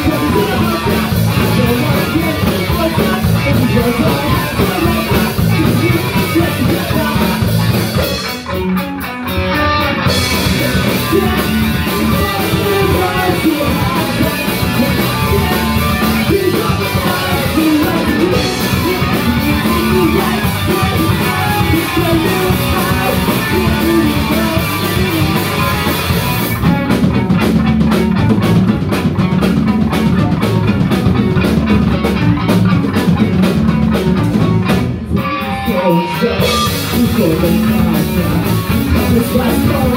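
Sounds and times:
person singing: 0.0s - 7.8s, 9.5s - 26.2s, 35.2s - 39.9s
live rock band playing: 0.0s - 39.9s.

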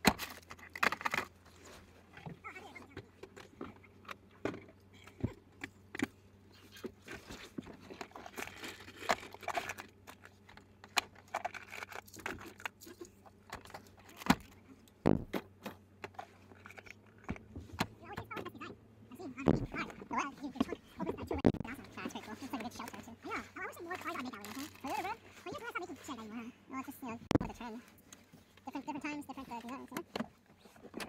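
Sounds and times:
clicks and knocks in car cab: 15.1s - 16.2s.

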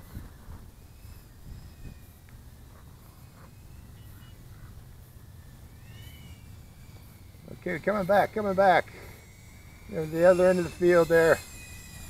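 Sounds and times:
wind rumble on microphone: 0.0s - 5.0s
drone motors whining: 0.0s - 12.0s.

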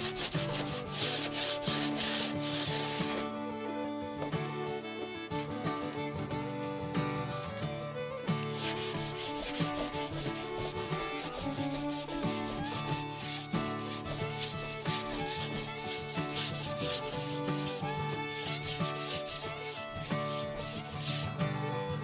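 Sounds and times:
sandpaper rubbing on bamboo: 0.0s - 3.3s, 8.5s - 21.4s
background music: 0.0s - 22.0s.

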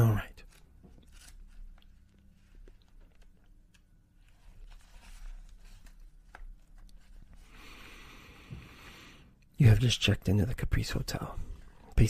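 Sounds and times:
book pages flipping: 0.2s - 7.8s.

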